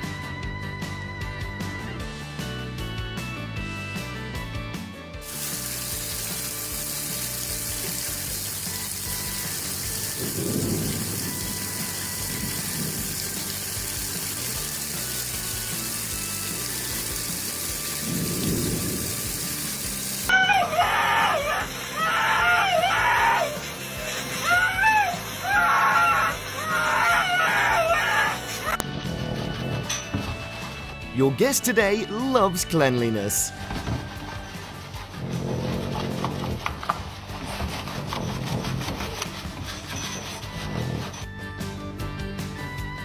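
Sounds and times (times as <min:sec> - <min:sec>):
heavy rain falling: 0:05.3 - 0:22.0
husky howling: 0:20.3 - 0:29.9.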